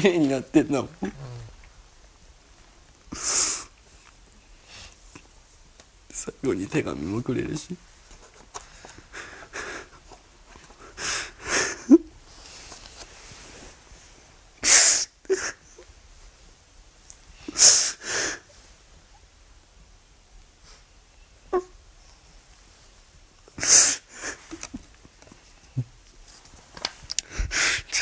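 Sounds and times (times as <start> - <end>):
gasping breaths: 1.0 - 1.6.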